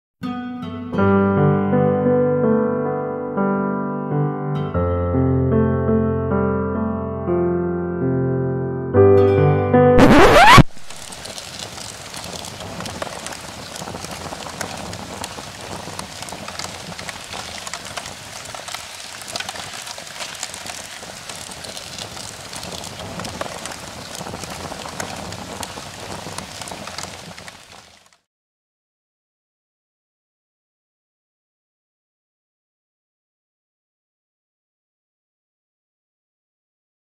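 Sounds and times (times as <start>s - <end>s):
small crackles and pops: 10.0s - 28.3s.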